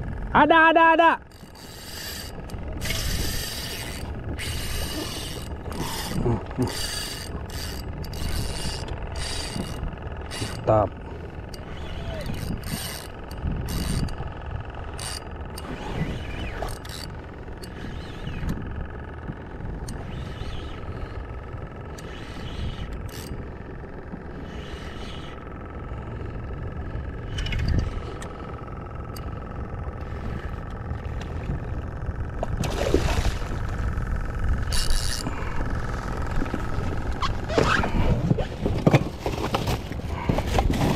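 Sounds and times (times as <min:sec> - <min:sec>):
low hum: 0:00.0 - 0:40.9
fishing reel cranking and clicking: 0:01.1 - 0:32.7, 0:33.6 - 0:38.1
wind noise on microphone: 0:12.1 - 0:14.7
fish splashing: 0:32.6 - 0:33.8.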